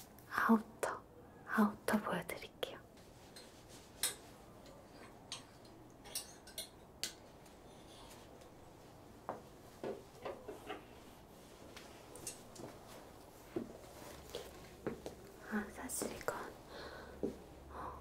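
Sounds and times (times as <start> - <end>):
fabric rustling: 11.0 - 15.4.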